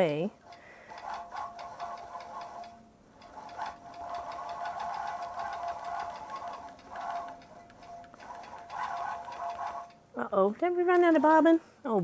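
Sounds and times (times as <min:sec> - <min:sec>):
quilting machine needle strokes: 0:00.0 - 0:11.5
motor whir: 0:00.5 - 0:10.0.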